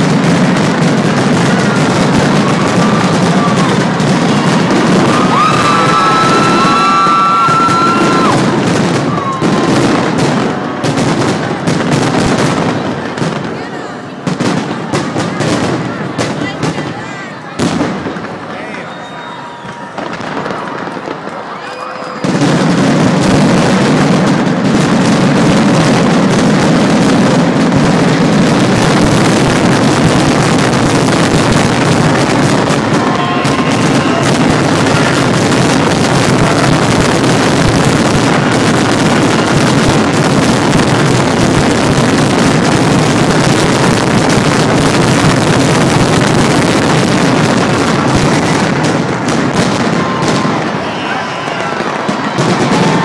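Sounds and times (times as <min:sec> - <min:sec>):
fireworks bursting: 0:00.0 - 0:53.0.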